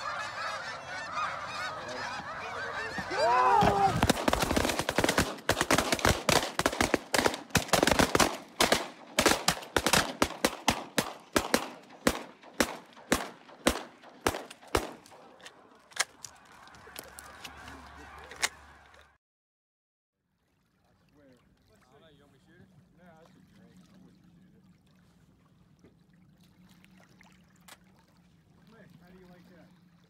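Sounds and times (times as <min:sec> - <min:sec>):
geese honking: 0:00.0 - 0:19.1
shotgun fire: 0:03.9 - 0:15.2.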